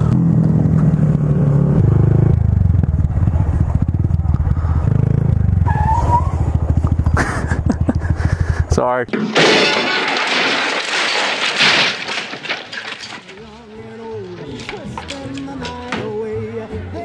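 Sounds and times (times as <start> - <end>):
motorcycle engine running: 0.0 - 5.7, 6.4 - 8.8.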